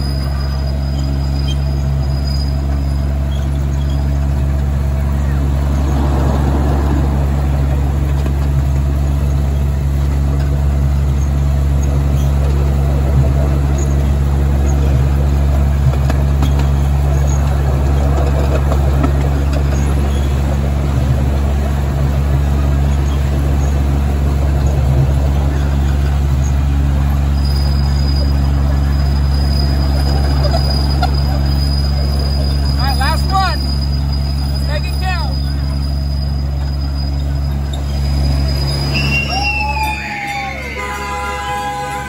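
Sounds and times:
miniature train running on track: 0.0 - 42.0
thin high whine: 27.1 - 42.0.

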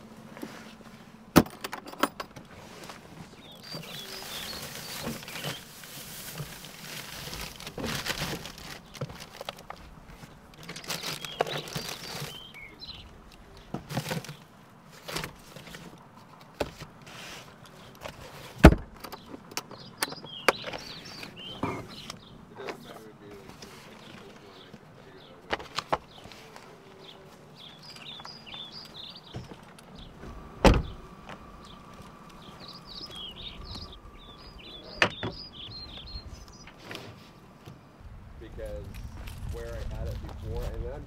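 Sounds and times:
plastic packaging rustling: 3.6 - 12.6.

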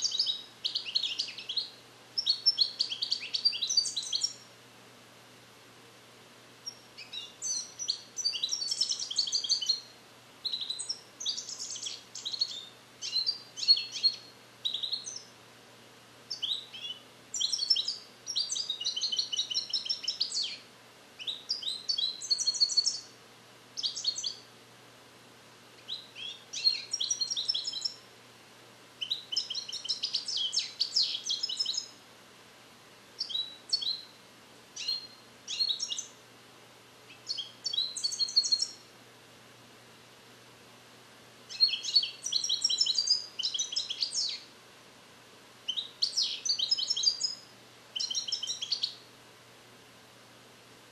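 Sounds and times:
goldfinch twittering song: 0.0 - 4.4, 6.6 - 15.3, 16.3 - 20.6, 21.2 - 23.1, 23.8 - 24.4, 25.8 - 28.0, 29.0 - 31.9, 33.2 - 34.1, 34.8 - 36.1, 37.1 - 38.8, 41.5 - 44.5, 45.7 - 47.4, 48.0 - 49.0.

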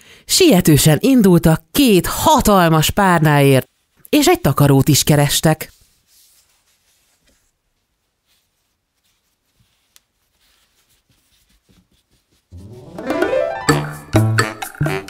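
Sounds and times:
faint rustling of toys: 5.5 - 12.8
light piano music: 12.5 - 15.0.

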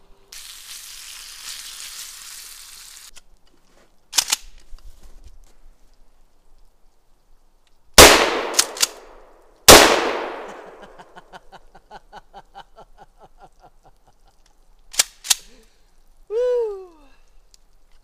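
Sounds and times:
sharp clicks: 7.6 - 9.2, 14.3 - 15.5
handgun shots echoing: 8.0 - 10.8.

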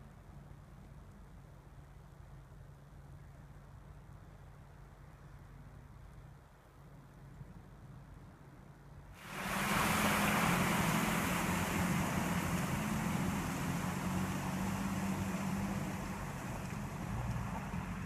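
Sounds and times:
engine running steadily: 0.0 - 18.0
water splashing around wheels: 9.2 - 18.0.

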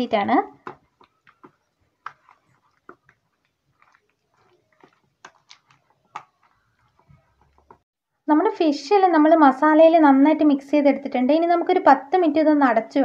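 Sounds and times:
hand rubbing paste into fish: 0.5 - 7.8.

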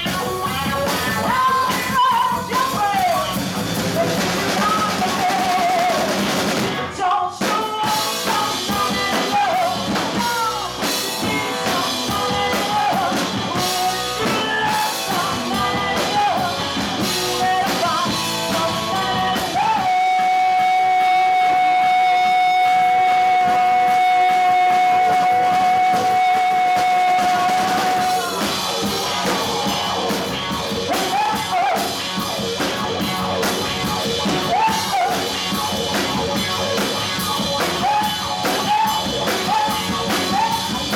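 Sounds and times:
woman singing: 0.0 - 3.4, 4.0 - 30.0
live rock band: 0.0 - 40.9.

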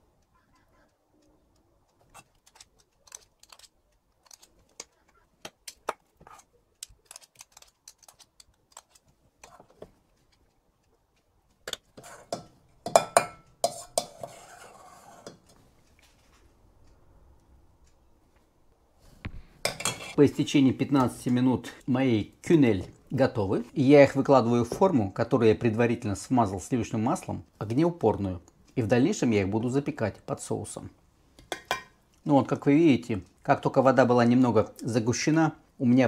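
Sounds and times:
metal spoons clicking and scraping: 1.9 - 9.7, 11.7 - 15.6.

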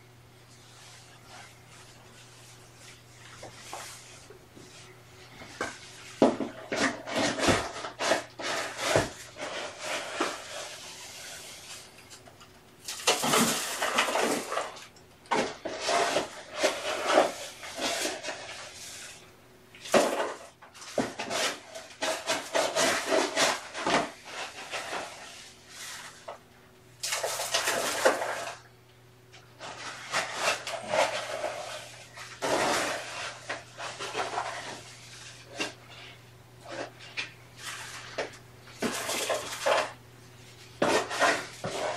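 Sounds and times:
cat litter scraping and rattling: 5.4 - 11.8, 12.8 - 19.2, 19.8 - 26.4, 27.1 - 28.7, 29.6 - 40.0, 40.7 - 41.9.

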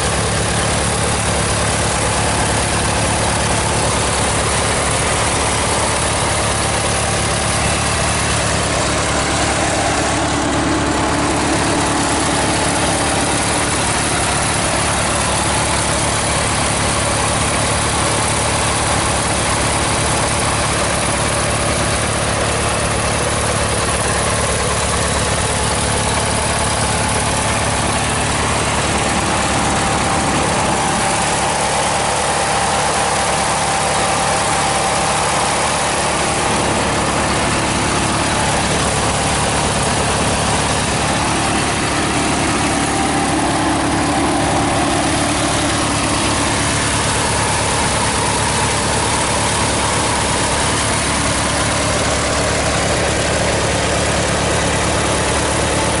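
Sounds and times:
garden tractor engine idling: 0.0 - 56.0.

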